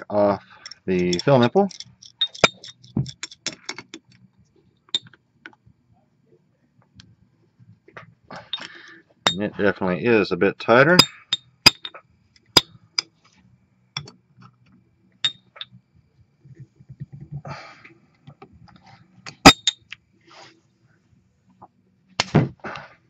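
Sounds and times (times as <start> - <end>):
wrench clicking on metal: 0.6 - 4.1.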